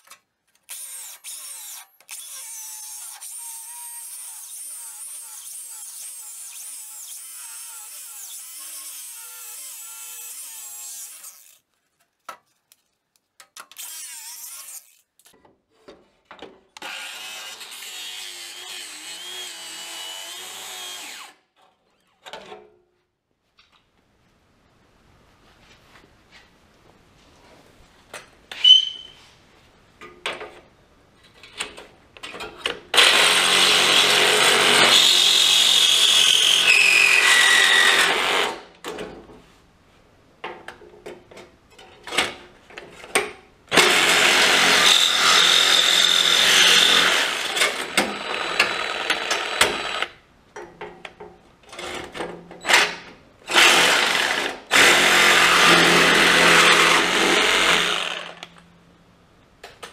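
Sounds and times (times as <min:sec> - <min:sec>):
angle grinder cutting steel: 0:00.7 - 0:11.6, 0:13.8 - 0:15.0, 0:16.8 - 0:21.4, 0:43.8 - 0:50.1, 0:53.5 - 0:58.5.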